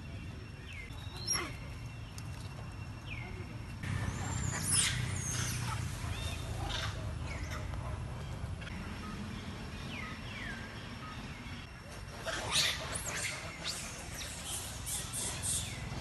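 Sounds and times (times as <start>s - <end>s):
monkeys calling: 3.8s - 9.2s, 12.0s - 16.0s.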